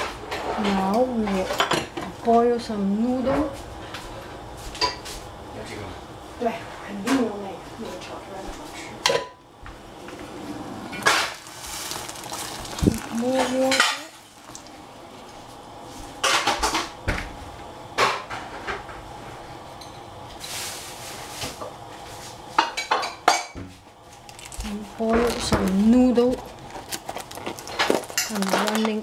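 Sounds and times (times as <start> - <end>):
metal pots and utensils clinking: 11.0 - 14.2, 27.1 - 29.0.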